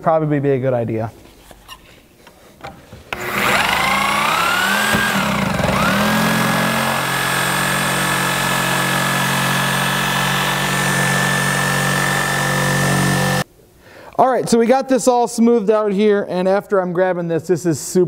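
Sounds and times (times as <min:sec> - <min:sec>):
reciprocating saw cutting metal tube: 0:03.2 - 0:13.4.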